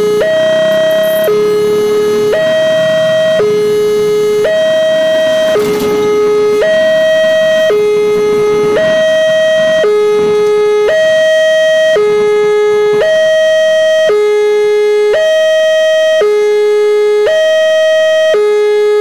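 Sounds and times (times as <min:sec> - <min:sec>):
level-crossing alarm two-tone: 0:00.0 - 0:19.0.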